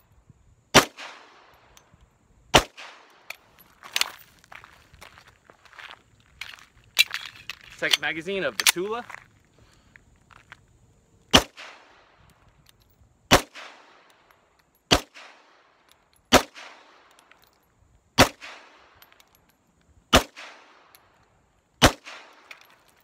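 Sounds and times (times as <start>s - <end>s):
pistol shots with echo: 0.8s - 1.5s, 2.5s - 3.2s, 11.3s - 12.0s, 13.3s - 14.0s, 16.3s - 17.1s, 18.2s - 18.9s, 20.1s - 20.8s, 21.8s - 22.5s.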